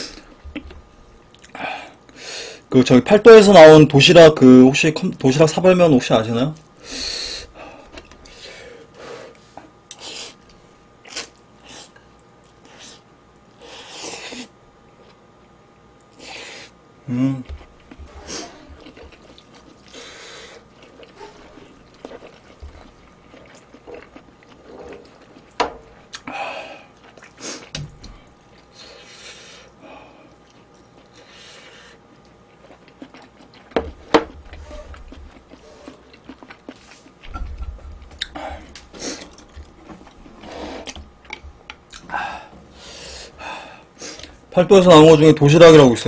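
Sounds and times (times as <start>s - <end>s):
person slurping and chewing noodles: 16.0s - 44.5s.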